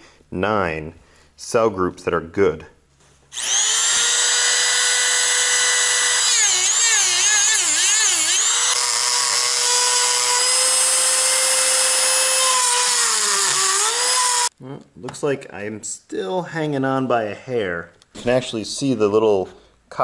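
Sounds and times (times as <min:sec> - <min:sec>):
rotary tool cutting plastic: 0:03.3 - 0:14.5.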